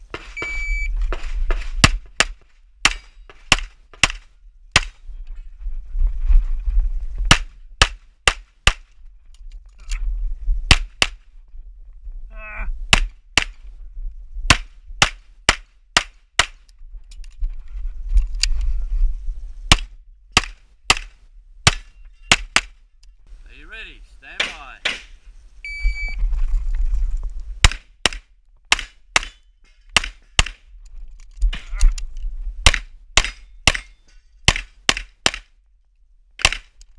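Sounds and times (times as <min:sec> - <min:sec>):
pistol shots: 0:24.4 - 0:25.2.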